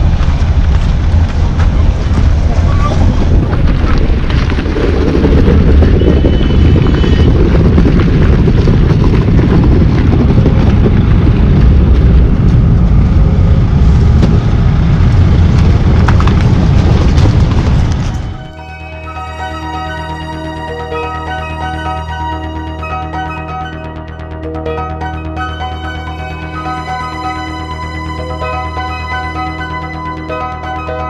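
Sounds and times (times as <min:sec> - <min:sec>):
wind buffeting microphone: 0:00.0 - 0:18.6.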